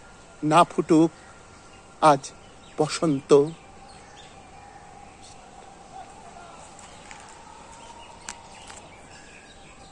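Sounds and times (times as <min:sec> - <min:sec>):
faint chirps: 0:00.0 - 0:09.9.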